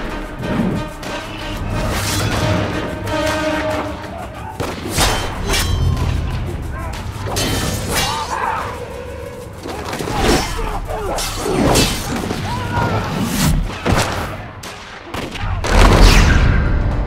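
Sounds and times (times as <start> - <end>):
shouts and grunts: 10.1 - 13.9.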